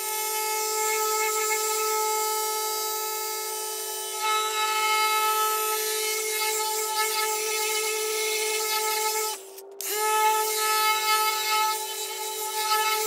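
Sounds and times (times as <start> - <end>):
orbital polisher motor hum: 0.0 - 13.0.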